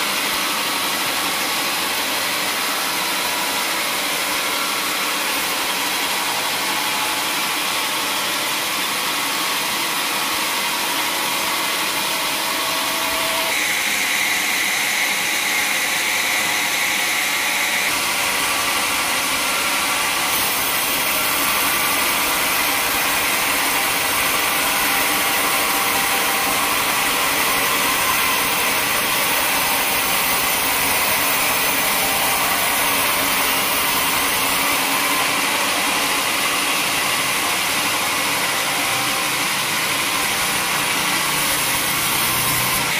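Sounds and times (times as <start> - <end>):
band saw cutting log: 0.0 - 42.9.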